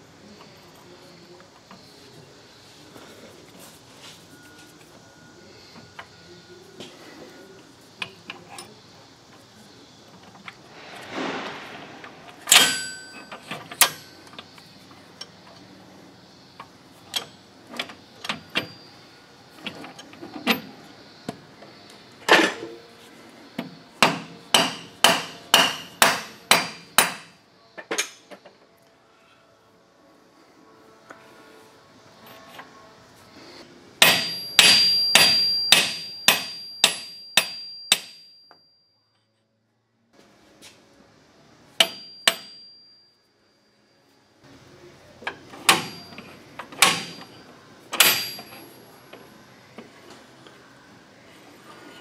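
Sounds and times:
ringing metal strikes: 0:12.4 - 0:14.3, 0:34.0 - 0:38.5
ringing metal taps: 0:41.8 - 0:42.9.

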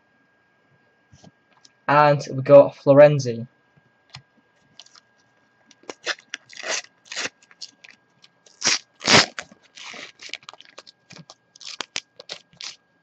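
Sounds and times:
wrapper crinkling: 0:04.8 - 0:05.0, 0:05.7 - 0:12.8
paper packet tearing: 0:05.8 - 0:12.8.

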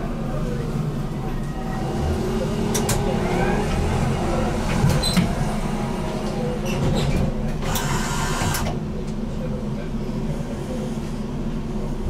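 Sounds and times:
tram running on track: 0:00.0 - 0:12.0.

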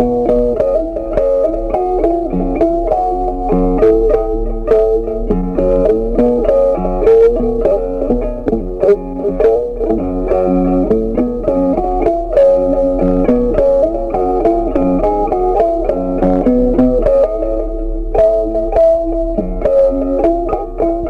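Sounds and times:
plucked guitar run: 0:00.0 - 0:21.0.

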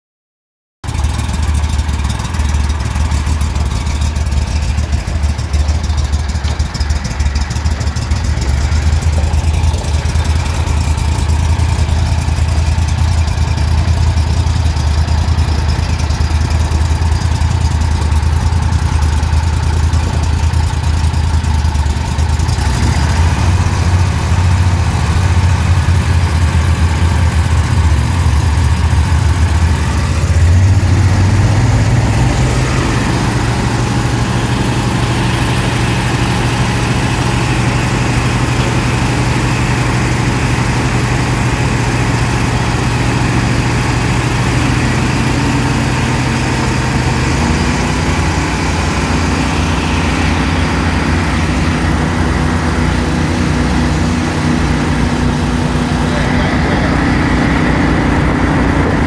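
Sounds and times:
outboard motors droning: 0:00.9 - 0:59.0.

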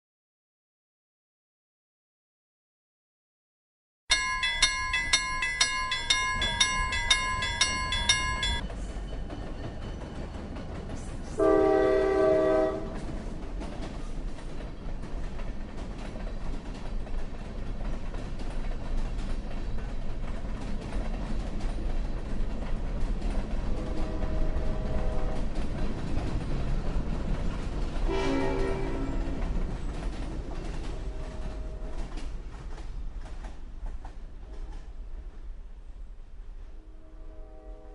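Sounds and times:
railway crossing bell ringing: 0:04.1 - 0:10.0
train rumble and wheel clatter: 0:04.1 - 0:37.9
train horn blast: 0:11.4 - 0:13.1, 0:23.7 - 0:25.5, 0:28.0 - 0:29.6, 0:30.8 - 0:32.2, 0:36.8 - 0:37.9.

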